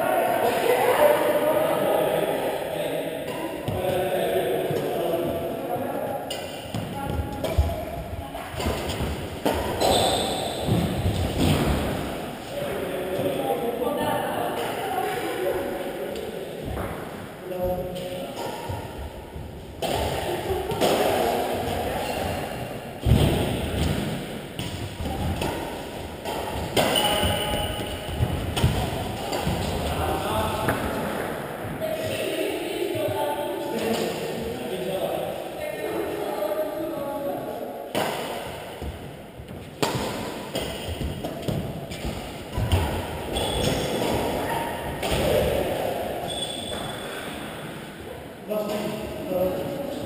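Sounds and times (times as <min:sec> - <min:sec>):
shoe squeaks: 0:09.8 - 0:10.7, 0:26.9 - 0:28.1, 0:43.3 - 0:44.0, 0:46.2 - 0:47.4
racket hitting shuttlecock: 0:23.0 - 0:30.0, 0:37.9 - 0:38.8, 0:39.8 - 0:45.6.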